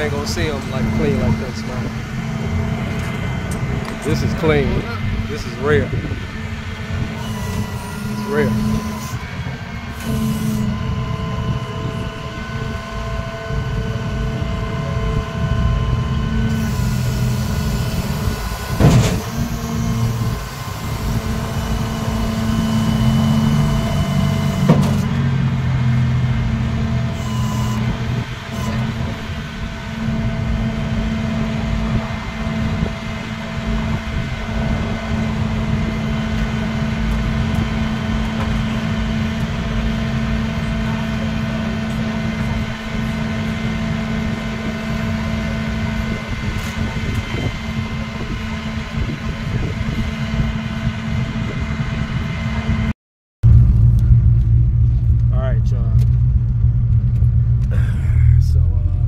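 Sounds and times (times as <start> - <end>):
truck engine idling: 0.0 - 49.4, 53.4 - 59.0.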